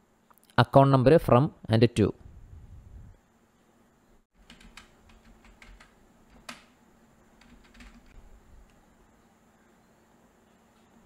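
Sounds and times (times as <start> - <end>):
typing on computer keyboard: 4.4 - 6.7, 7.4 - 8.2.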